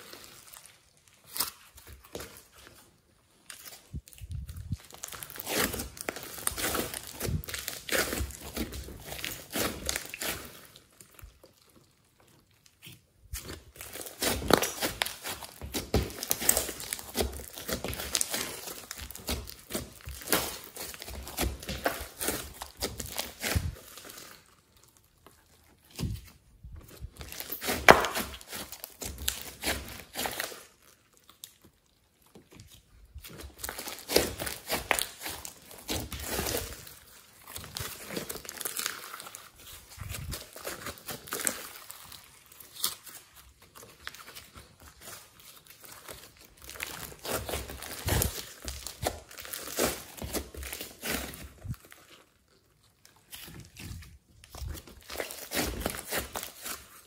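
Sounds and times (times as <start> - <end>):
slime crackling and popping: 3.5 - 26.3, 26.9 - 57.0.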